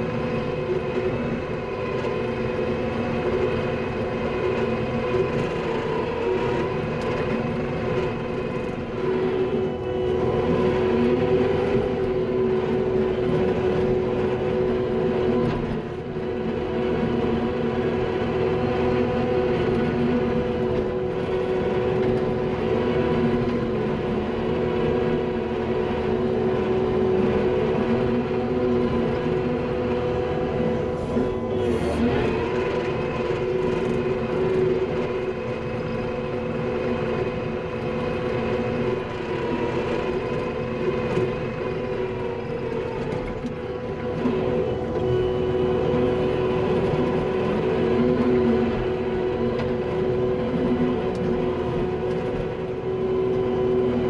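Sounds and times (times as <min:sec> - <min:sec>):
diesel engine running under load: 0:00.0 - 0:54.0
hydraulic whine: 0:29.5 - 0:54.0.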